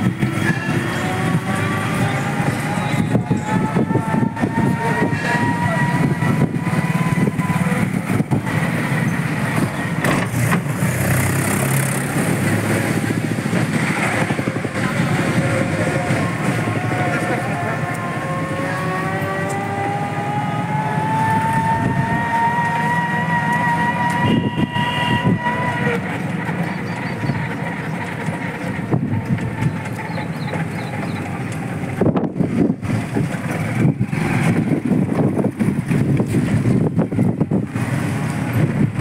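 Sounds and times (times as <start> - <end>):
rickshaw motor whine: 0.0 - 39.0
road rumble: 0.0 - 39.0.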